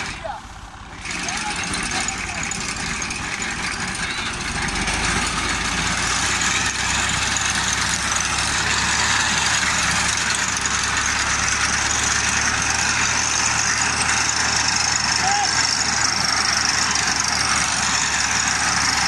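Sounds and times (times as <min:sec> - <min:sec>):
tractor diesel engine running: 0:00.0 - 0:19.0.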